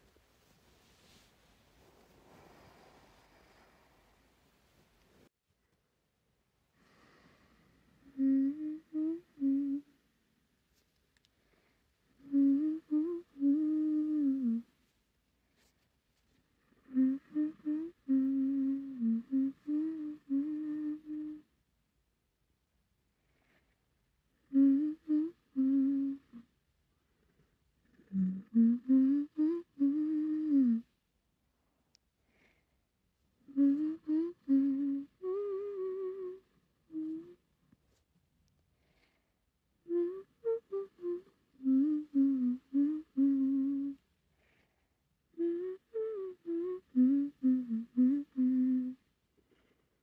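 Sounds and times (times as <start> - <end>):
woman humming: 8.0 - 10.0, 12.2 - 14.7, 16.8 - 21.5, 24.4 - 26.5, 27.9 - 30.9, 33.5 - 37.4, 39.9 - 44.0, 45.4 - 49.0.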